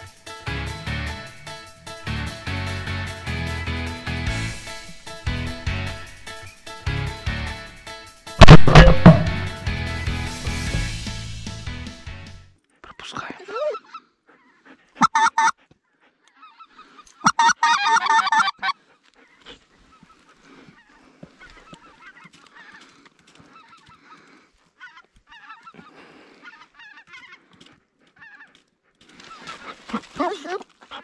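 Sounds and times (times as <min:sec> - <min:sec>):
goose honking: 0:13.8 - 0:15.5, 0:16.4 - 0:18.8.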